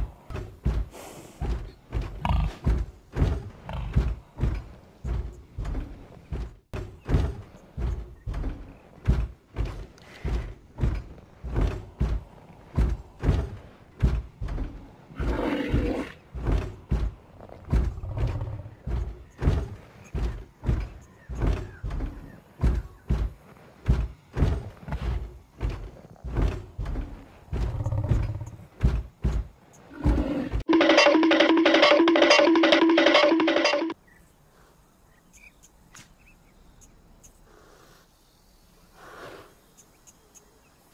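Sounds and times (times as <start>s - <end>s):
heavy thudding footsteps: 0.0s - 15.1s, 16.2s - 30.2s.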